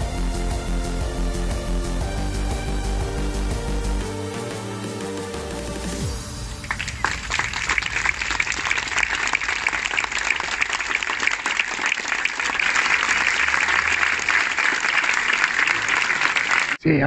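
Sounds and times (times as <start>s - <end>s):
crowd applauding: 6.5s - 16.8s.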